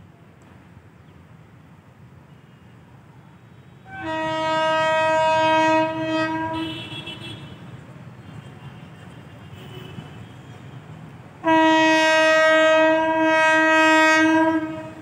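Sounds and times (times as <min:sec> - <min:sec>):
locomotive horn blast: 0:03.8 - 0:07.7, 0:11.4 - 0:15.0.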